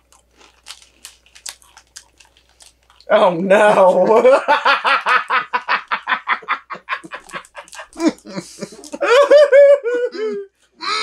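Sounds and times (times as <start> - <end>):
person laughing hard: 3.5 - 11.0.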